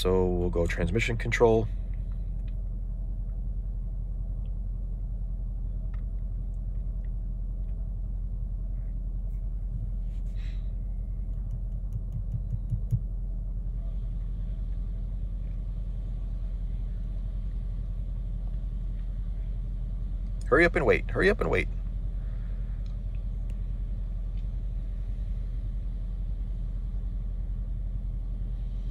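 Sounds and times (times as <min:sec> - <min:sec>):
car engine idling: 0:00.0 - 0:28.9
soft bumps: 0:09.3 - 0:10.5, 0:11.1 - 0:13.1.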